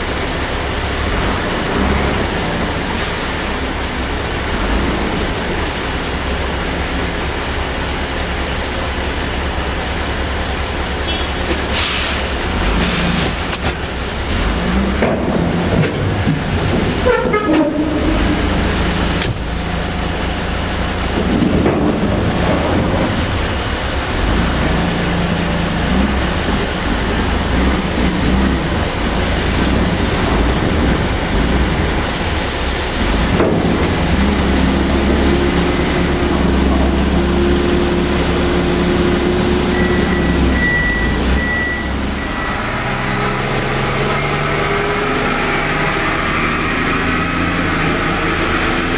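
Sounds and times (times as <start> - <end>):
diesel truck engine running: 0.0 - 48.9
brief squeak: 3.0 - 3.6, 11.1 - 12.5.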